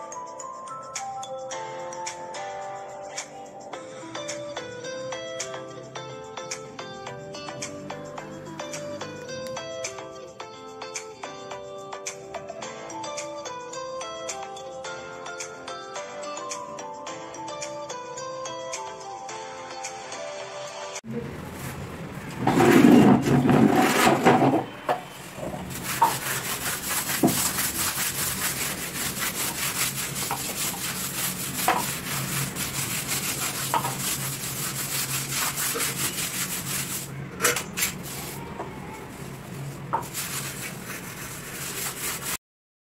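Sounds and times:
scrubbing wet floor: 21.1s - 37.1s, 37.8s - 42.4s.

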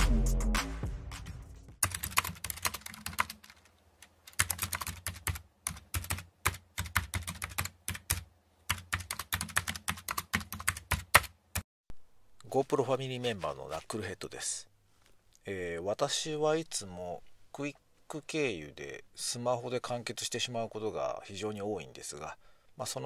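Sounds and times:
computer keyboard typing: 1.8s - 11.6s.

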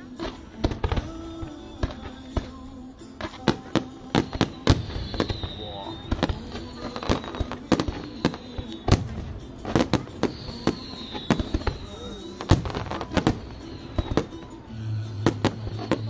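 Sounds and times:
fireworks crackle: 0.0s - 16.0s
fireworks bangs and cracks: 0.1s - 14.5s, 15.1s - 16.0s
fireworks booms: 0.2s - 14.5s, 15.2s - 16.0s
high whistle: 4.0s - 16.0s.

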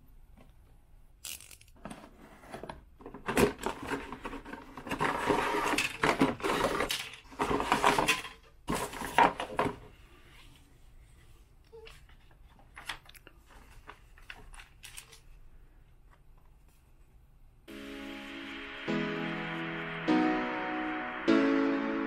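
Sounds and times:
plastic parts knocking and clattering: 1.3s - 9.9s
paper rustling and crinkling: 11.9s - 15.5s.

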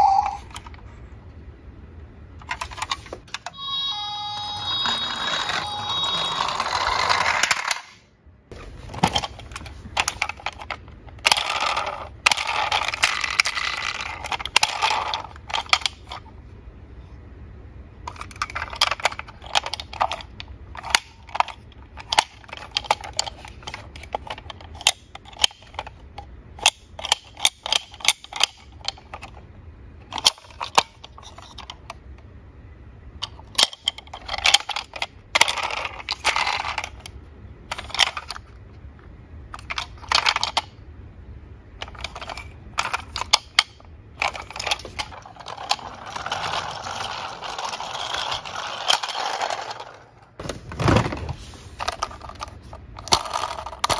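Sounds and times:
toy truck plastic clicks and snaps: 18.1s - 29.4s, 30.1s - 32.0s, 33.2s - 38.5s, 41.8s - 46.5s
plastic wheels rolling on wood: 44.2s - 52.5s.

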